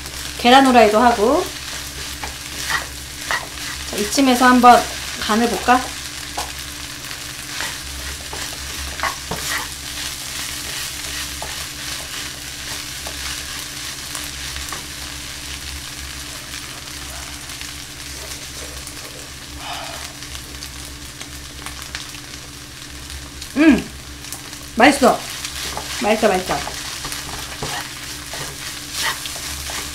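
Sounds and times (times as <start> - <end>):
rice sizzling in a frying pan: 0.0 - 29.9
spatula scraping pan: 1.1 - 6.5, 7.5 - 13.8, 25.3 - 29.9.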